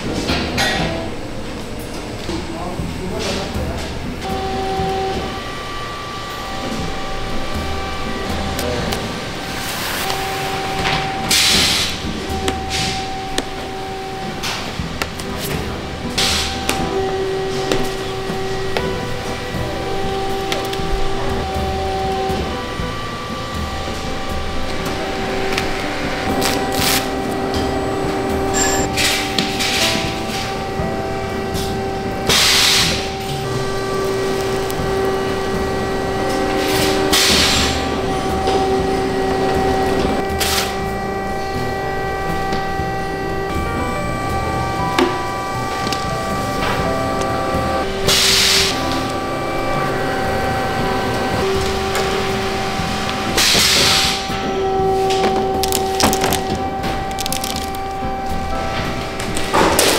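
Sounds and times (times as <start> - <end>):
steady machine hum: 0.0 - 59.9
air hiss bursts: 9.4 - 20.4, 23.9 - 38.0, 47.8 - 49.1.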